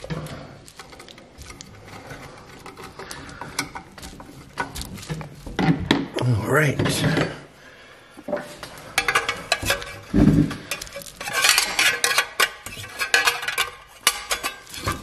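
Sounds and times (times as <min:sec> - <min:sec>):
sheet metal parts clanking: 0:08.9 - 0:15.0.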